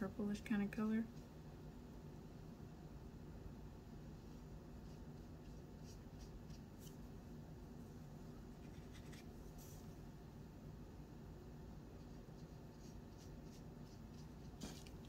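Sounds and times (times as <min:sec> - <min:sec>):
low steady hum: 0:00.0 - 0:15.0
paintbrush strokes on paper: 0:04.0 - 0:07.1, 0:08.6 - 0:10.0, 0:12.0 - 0:15.0.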